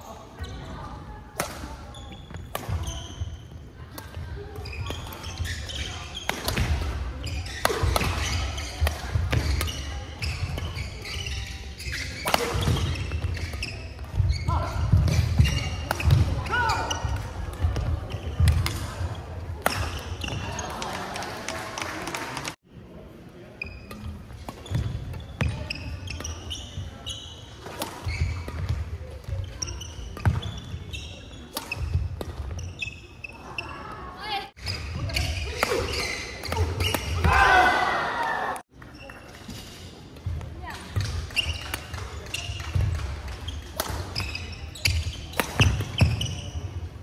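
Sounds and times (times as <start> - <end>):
shoes squeaking: 1.6 - 21.0, 23.5 - 37.8, 38.7 - 47.0
racket hitting shuttlecock: 2.4 - 3.1, 3.9 - 20.4, 27.6 - 30.5, 31.5 - 32.6, 34.7 - 37.6, 40.9 - 46.6.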